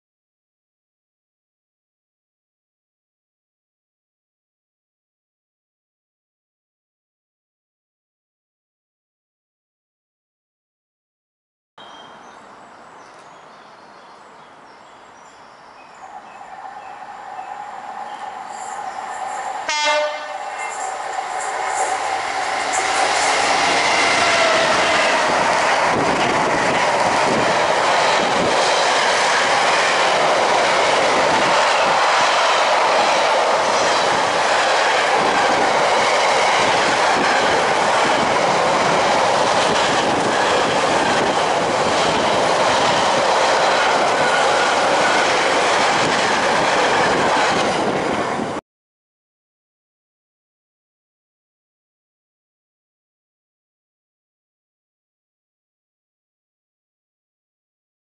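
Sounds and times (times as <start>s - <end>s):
freight train wheel noise: 12.0s - 48.6s
train horn blast: 19.6s - 22.0s.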